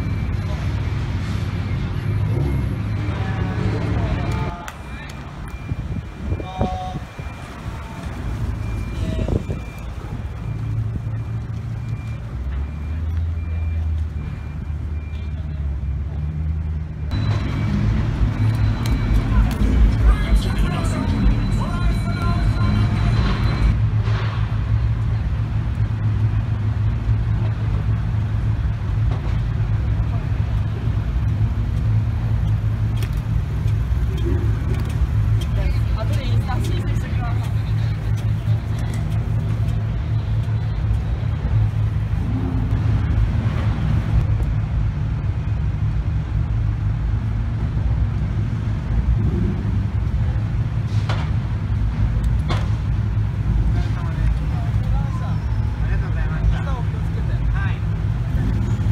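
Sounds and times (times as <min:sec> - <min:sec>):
car engine rumble: 0:00.0 - 0:58.9.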